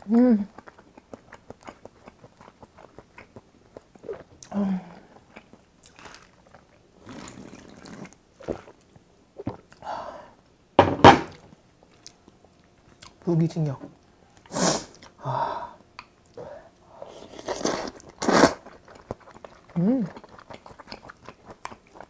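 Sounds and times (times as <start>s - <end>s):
wet chewing and mouth clicks: 0.5s - 9.8s, 17.3s - 22.0s
person humming: 4.5s - 5.0s.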